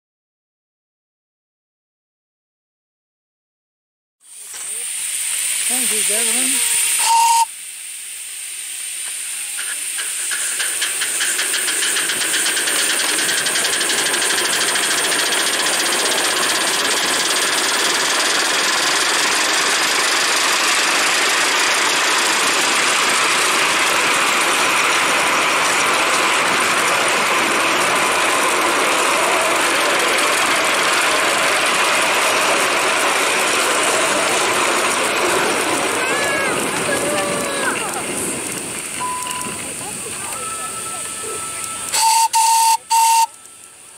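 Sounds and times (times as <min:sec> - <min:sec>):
steam locomotive exhaust beats: 0:04.3 - 0:43.9.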